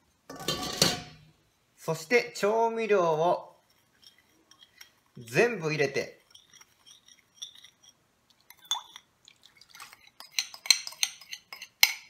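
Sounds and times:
liquid dripping: 6.3s - 11.1s.

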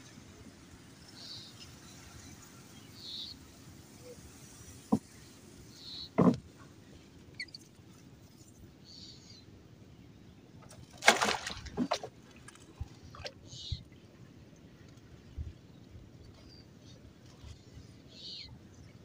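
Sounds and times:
wooden pole knocking on boat: 6.2s - 6.4s
splash in shallow water: 10.7s - 13.8s.

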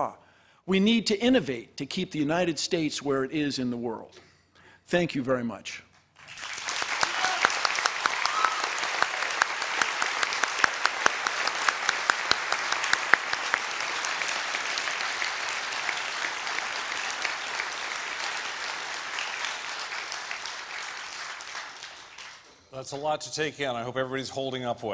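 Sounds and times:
audience applauding: 6.2s - 22.5s.

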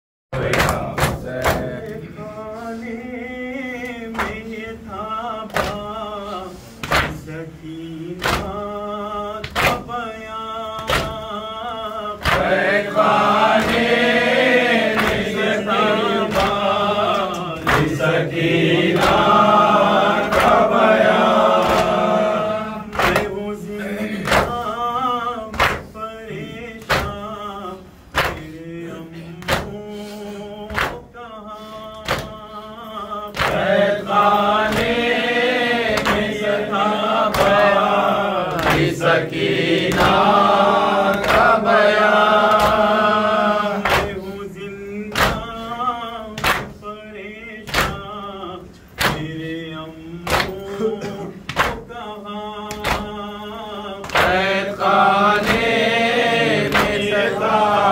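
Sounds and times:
group of men's voices: 0.3s - 57.9s
man chanting a lament: 0.3s - 57.9s
hands slapping chest: 16.3s - 18.0s, 22.9s - 23.3s, 30.7s - 31.0s, 38.5s - 39.0s, 42.5s - 43.0s, 43.8s - 44.2s, 56.6s - 57.1s.

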